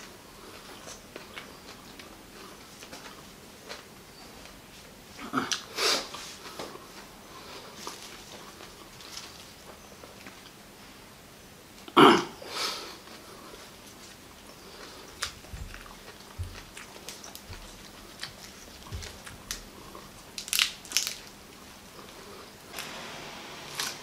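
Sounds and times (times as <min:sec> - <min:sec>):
soft chewing clicks: 0:13.9 - 0:22.3
petals tearing with crackles: 0:17.0 - 0:21.7, 0:22.7 - 0:24.0
crunching bite: 0:18.0 - 0:21.4.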